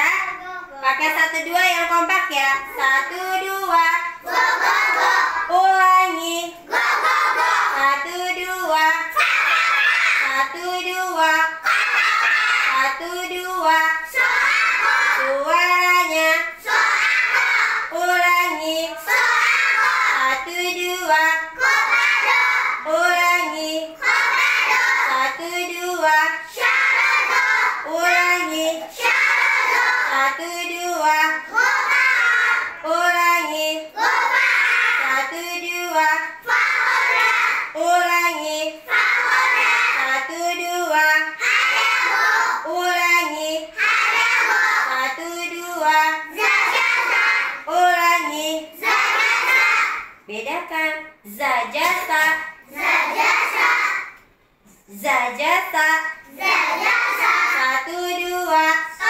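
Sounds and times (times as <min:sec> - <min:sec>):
children chanting together: 0:04.0 - 0:05.5, 0:06.6 - 0:08.4, 0:09.0 - 0:10.3, 0:11.4 - 0:13.0, 0:13.9 - 0:15.4, 0:16.4 - 0:20.5, 0:21.4 - 0:25.4, 0:26.4 - 0:30.4, 0:31.4 - 0:35.4, 0:36.3 - 0:37.8, 0:38.8 - 0:40.3, 0:41.2 - 0:45.0, 0:46.1 - 0:47.7, 0:48.7 - 0:50.2, 0:52.5 - 0:54.2, 0:56.3 - 0:59.0.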